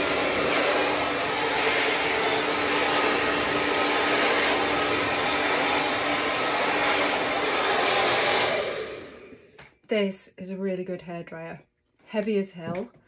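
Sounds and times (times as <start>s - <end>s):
hair dryer blowing air: 0.0s - 9.7s.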